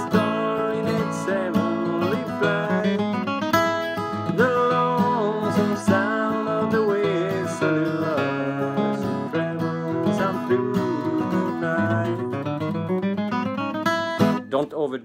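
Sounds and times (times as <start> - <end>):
acoustic guitar flatpicking: 0.0 - 14.7.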